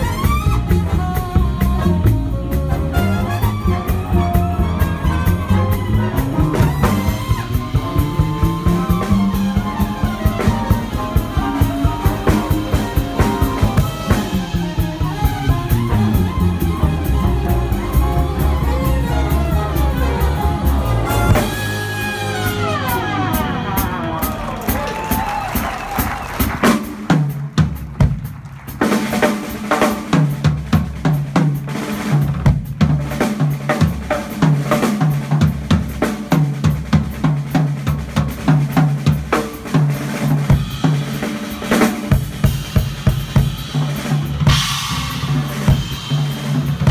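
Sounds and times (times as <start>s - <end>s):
drum kit groove: 0.0s - 46.9s
low bass figure: 3.6s - 23.9s.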